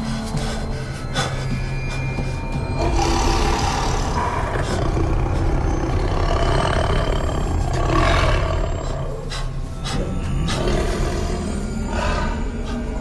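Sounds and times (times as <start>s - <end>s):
lions roaring: 2.8s - 9.3s.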